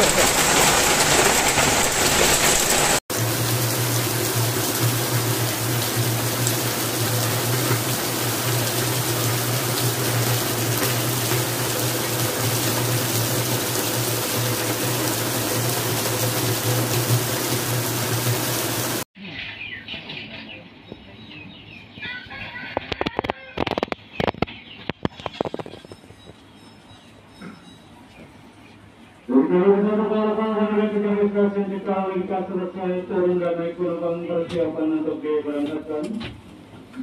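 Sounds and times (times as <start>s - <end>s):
heavy rain and hail: 0.0s - 19.0s.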